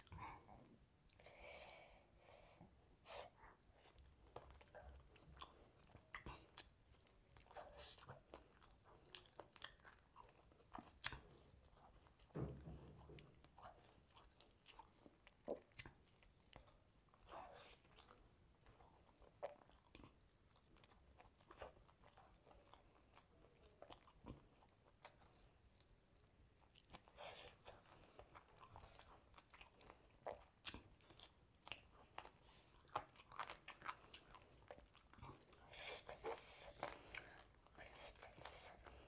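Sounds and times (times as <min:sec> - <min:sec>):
person chewing chicken: 0:03.8 - 0:39.0.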